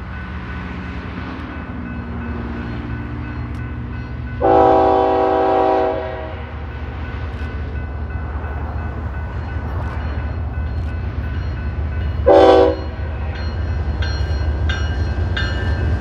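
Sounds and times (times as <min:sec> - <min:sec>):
locomotive horn chord: 0:04.4 - 0:06.5, 0:12.2 - 0:13.0.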